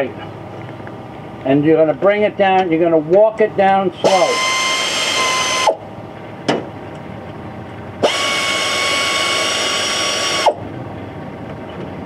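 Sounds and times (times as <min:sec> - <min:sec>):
air ratchet whine: 0:04.0 - 0:05.8, 0:08.0 - 0:10.6.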